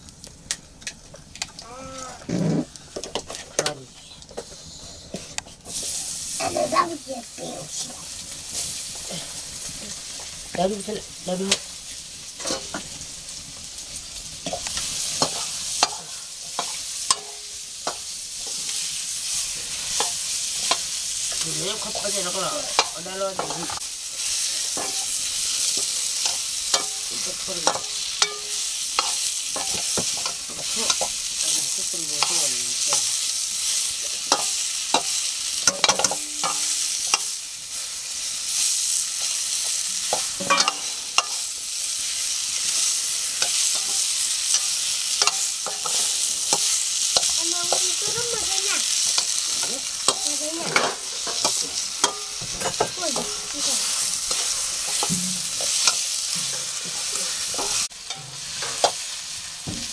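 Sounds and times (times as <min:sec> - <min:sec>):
food sizzling in a wok: 0:00.0 - 0:59.9
utensil scraping a pan: 0:02.2 - 0:03.6.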